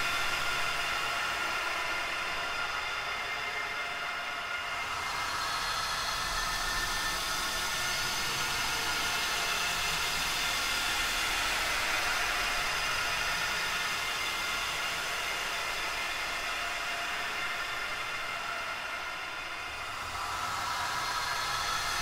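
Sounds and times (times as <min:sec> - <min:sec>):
ghostly wails with hiss: 0:00.0 - 0:22.0.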